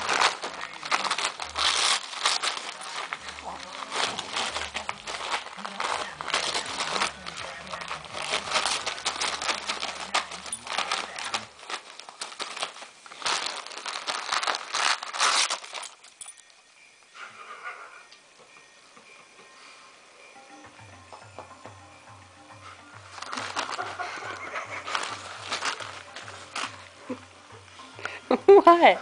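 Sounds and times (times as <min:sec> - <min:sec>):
dog tearing wrapping paper: 0:00.0 - 0:16.3, 0:23.1 - 0:27.2.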